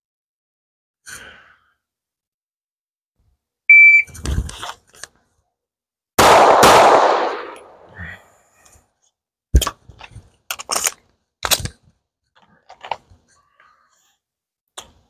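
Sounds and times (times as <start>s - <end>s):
shot timer beep: 3.7s - 4.1s
pistol shots: 6.2s - 7.9s.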